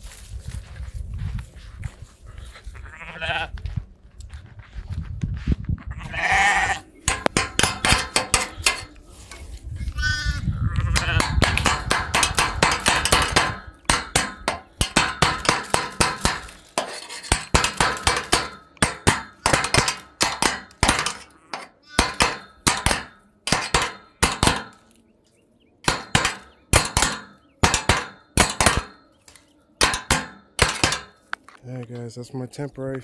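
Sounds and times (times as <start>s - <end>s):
hammer striking metal hinge: 7.1s - 9.4s, 10.9s - 24.9s, 25.8s - 31.2s.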